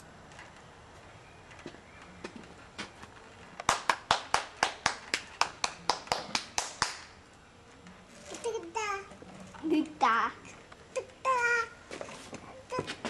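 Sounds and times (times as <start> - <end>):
hands clapping: 3.6 - 7.1.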